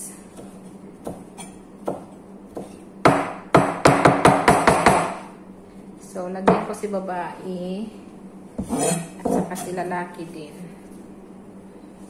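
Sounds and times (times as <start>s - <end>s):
knife chopping on cutting board: 0.3s - 5.2s, 8.6s - 9.7s.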